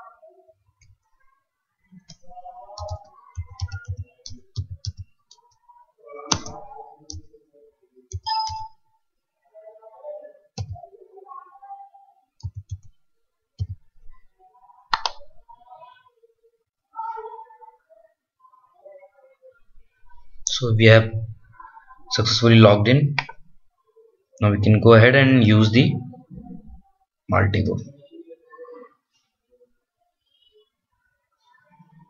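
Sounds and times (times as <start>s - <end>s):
keyboard typing clicks: 2.1s - 5.5s, 6.3s - 7.2s, 8.1s - 8.8s, 12.4s - 12.9s, 14.9s - 15.2s.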